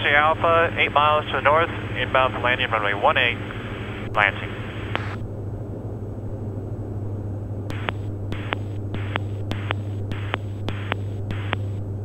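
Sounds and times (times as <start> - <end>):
aircraft engines droning: 0.0 - 12.0
sharp clicks: 7.7 - 11.8.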